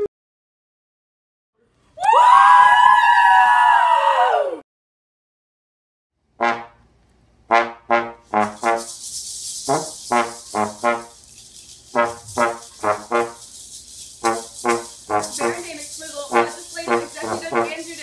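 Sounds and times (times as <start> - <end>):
trombone short detached notes: 6.4 - 6.8, 7.5 - 11.2, 11.9 - 13.6, 14.2 - 18.0
maracas shaking: 7.9 - 18.0.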